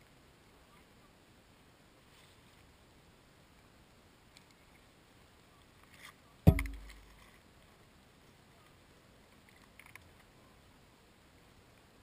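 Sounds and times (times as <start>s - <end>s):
dull thump: 6.5s - 7.0s
small clicks: 9.4s - 10.3s.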